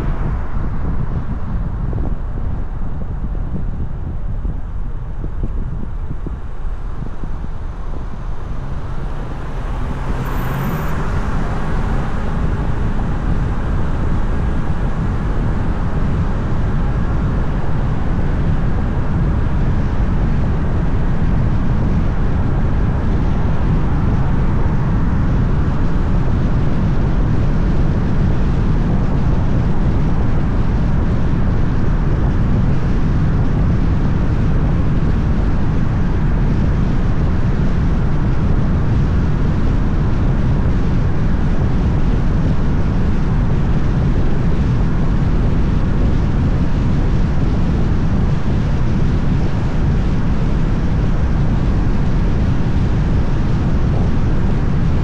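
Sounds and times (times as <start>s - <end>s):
road and wind noise: 0.0s - 55.0s
car engine: 5.2s - 26.4s.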